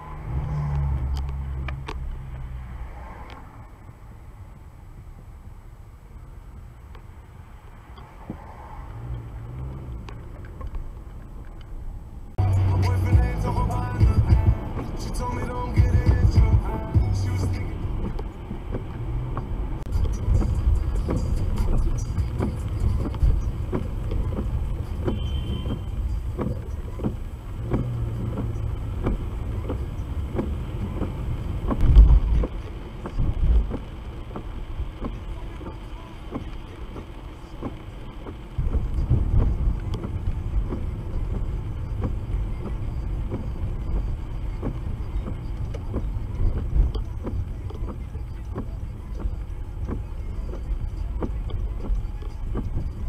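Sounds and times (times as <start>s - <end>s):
car engine and road rumble: 0.0s - 53.0s.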